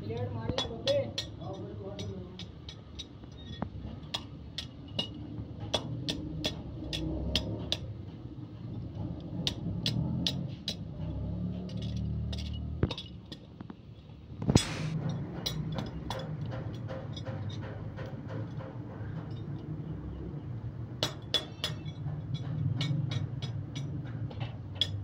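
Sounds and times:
metal knock: 14.4s - 20.2s.

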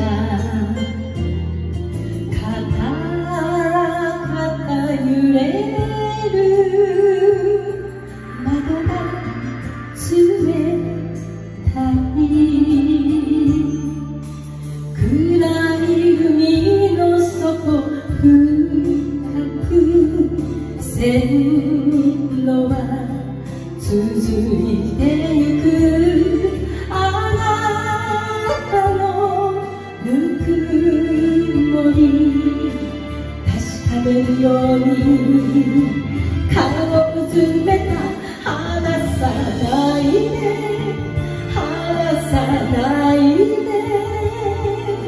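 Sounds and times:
woman singing with vibrato: 0.0s - 1.2s, 2.2s - 45.0s
karaoke backing track: 0.0s - 45.0s.

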